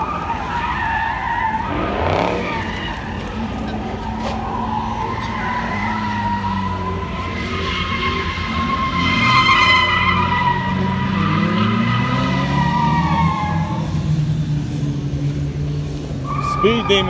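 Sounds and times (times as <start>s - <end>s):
car tyres squealing: 0.0s - 17.0s
car engine revving: 1.2s - 7.4s.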